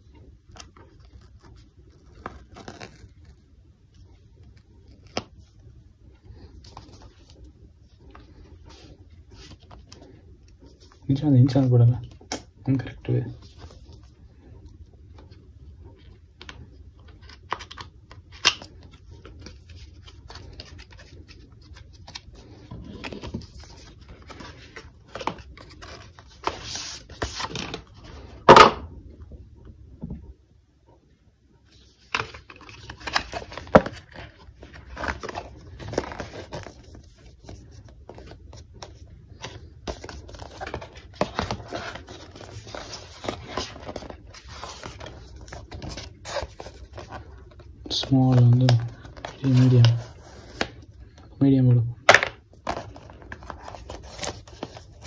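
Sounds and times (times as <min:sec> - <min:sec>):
cardboard packaging rustling: 0:16.0 - 0:28.7, 0:31.7 - 0:51.1, 0:52.1 - 0:55.0.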